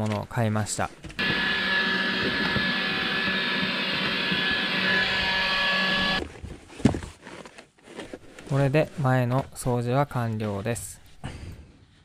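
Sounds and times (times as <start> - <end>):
vacuum cleaner whining: 1.2 - 6.2.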